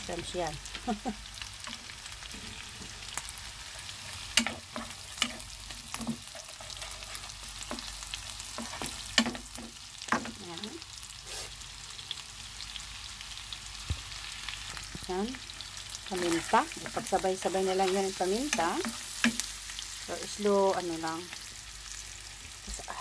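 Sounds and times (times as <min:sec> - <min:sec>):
butter sizzling in a frying pan: 0:00.0 - 0:23.0
wooden spoon scraping a pan: 0:01.6 - 0:03.2, 0:03.8 - 0:10.4.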